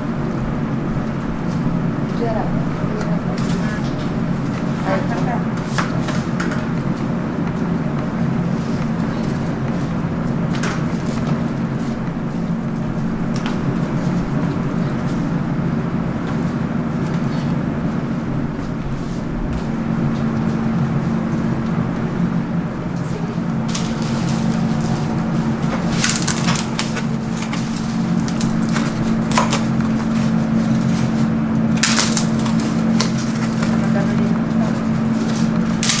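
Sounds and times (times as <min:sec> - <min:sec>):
low kitchen machine hum: 0:00.0 - 0:36.0
foam boxes crackling and clicking: 0:23.7 - 0:36.0.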